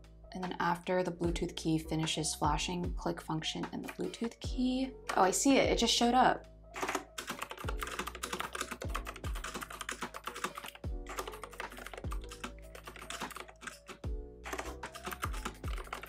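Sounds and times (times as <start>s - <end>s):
background music: 0.0s - 16.0s.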